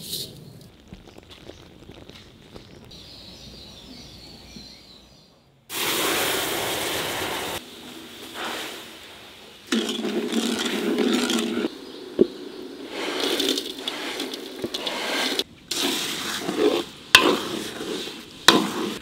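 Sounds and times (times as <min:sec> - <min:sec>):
hiss of sizzling and steam: 0:05.7 - 0:19.0
wooden spoon scraping wok: 0:09.7 - 0:19.0.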